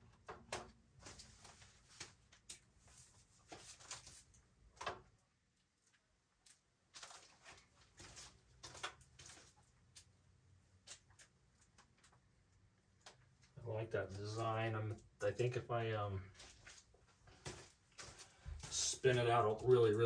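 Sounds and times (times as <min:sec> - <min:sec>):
faint clicks and taps: 0:10.8 - 0:13.6.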